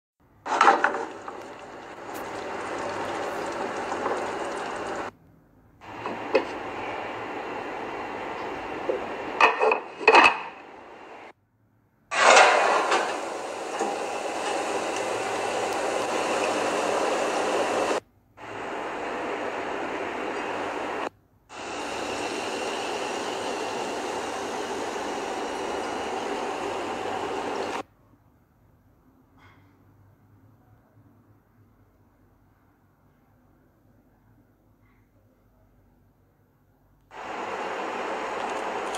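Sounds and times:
pans clattering: 0:00.5 - 0:05.0, 0:09.4 - 0:10.6, 0:12.1 - 0:16.6
hiss of food cooking: 0:00.5 - 0:05.1, 0:05.8 - 0:09.4, 0:12.2 - 0:27.8, 0:37.1 - 0:38.9.

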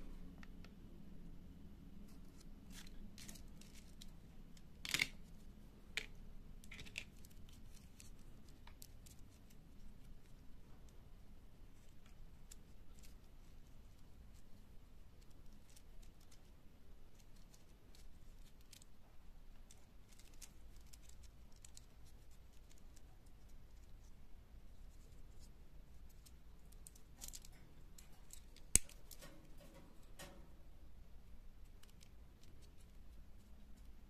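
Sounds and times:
plastic toy parts clicking: 0:04.8 - 0:05.2.

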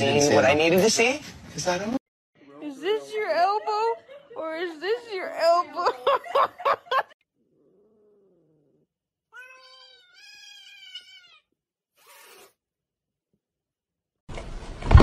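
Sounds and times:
cat yowling: 0:07.7 - 0:11.5.

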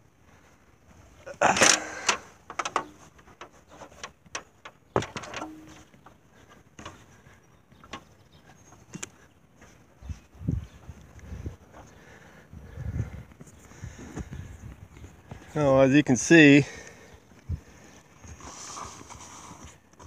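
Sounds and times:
ladder knocks and clanks: 0:01.4 - 0:06.1
ladder clattering: 0:01.4 - 0:07.2, 0:07.8 - 0:08.2.

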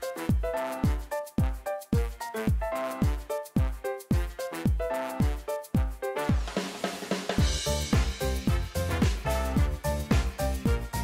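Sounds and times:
electronic dance music: 0:00.0 - 0:11.0
deep kick drum: 0:07.4 - 0:11.0.

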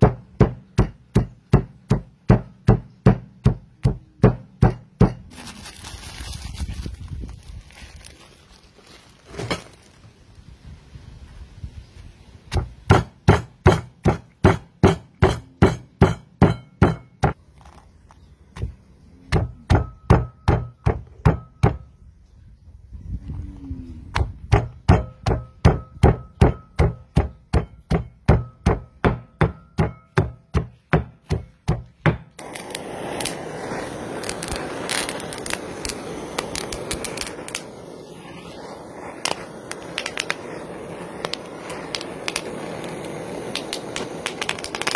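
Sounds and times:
stone pestle pounding in mortar: 0:00.0 - 0:05.3, 0:12.5 - 0:17.4, 0:19.3 - 0:21.8, 0:24.2 - 0:32.4
leaves crackling and scraping on wood: 0:05.3 - 0:12.5, 0:17.3 - 0:19.3.

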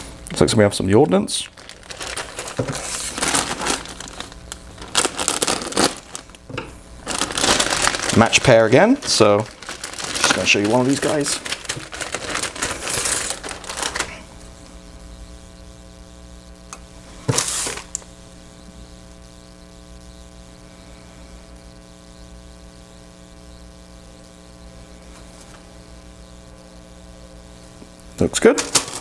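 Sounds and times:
electrical mains hum: 0:00.0 - 0:29.0
plastic bag crinkling: 0:01.1 - 0:14.4, 0:28.6 - 0:29.0
plastic rustle: 0:01.3 - 0:14.3, 0:28.6 - 0:29.0.

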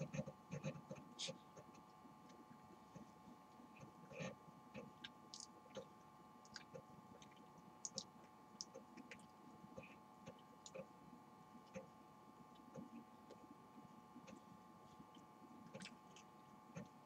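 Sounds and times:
faint steady hum: 0:00.0 - 0:17.0
wet mouth clicks: 0:06.5 - 0:09.1.

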